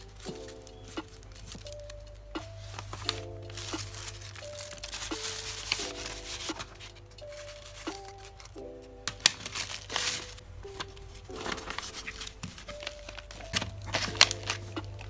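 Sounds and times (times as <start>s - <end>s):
background music with held notes: 0.0s - 15.0s
paper and plastic bag crinkling: 0.0s - 15.0s.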